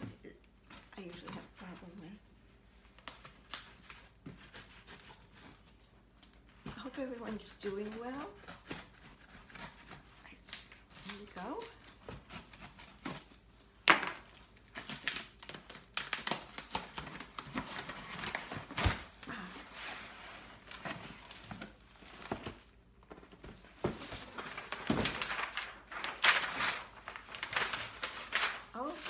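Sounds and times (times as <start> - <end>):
cardboard flaps scraping and knocking: 19.8 - 28.9
packing paper crinkling: 20.5 - 29.0.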